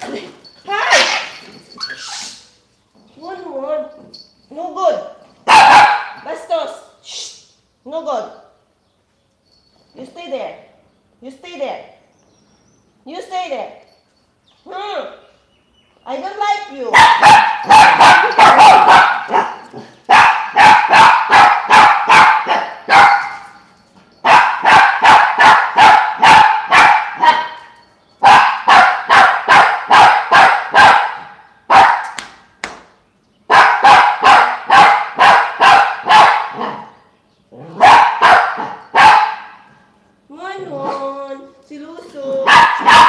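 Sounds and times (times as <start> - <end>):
small dog yapping: 17.0 - 23.4, 37.6 - 39.6, 42.5 - 43.0.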